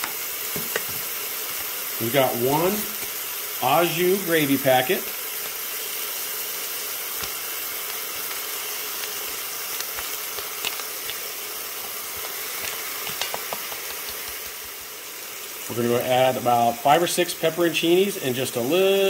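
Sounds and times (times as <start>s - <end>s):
meat sizzling in a pot: 0.0s - 19.0s
powder ticking onto meat: 7.1s - 15.0s.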